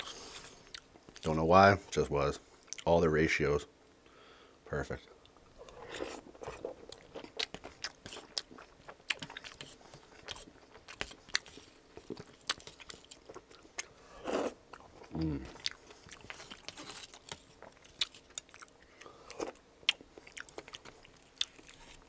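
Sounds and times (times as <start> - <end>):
chewing crunchy food: 5.3 - 22.0.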